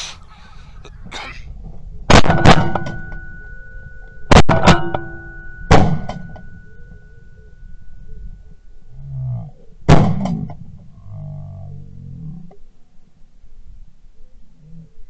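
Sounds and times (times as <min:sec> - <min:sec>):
heavy bangs with ringing tone: 0:02.1 - 0:08.2, 0:09.9 - 0:10.8.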